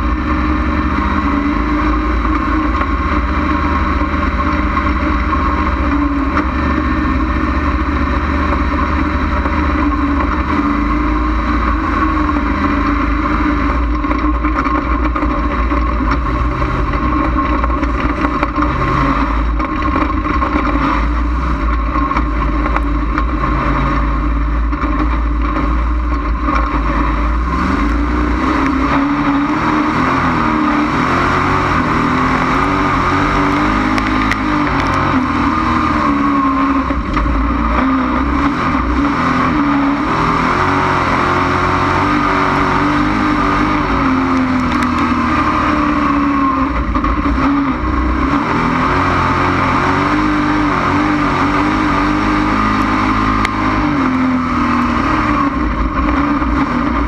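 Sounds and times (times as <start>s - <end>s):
race car engine revving: 0.0s - 57.0s
wind and road noise: 0.0s - 57.0s.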